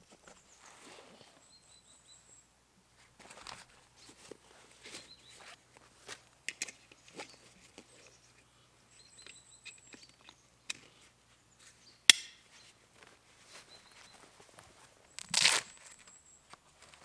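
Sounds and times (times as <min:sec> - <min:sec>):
straps rustling: 0:02.9 - 0:08.4, 0:12.5 - 0:17.0.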